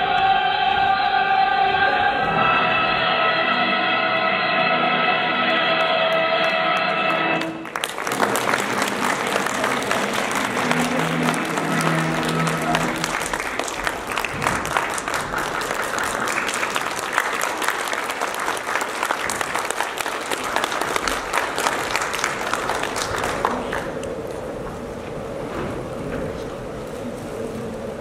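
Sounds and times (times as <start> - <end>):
audience applauding: 5.8 - 24.4.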